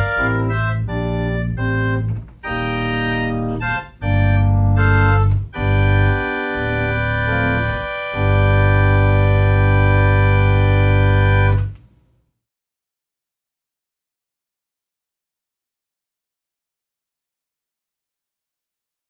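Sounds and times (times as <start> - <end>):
electronic organ sustained chords: 0.0 - 11.8.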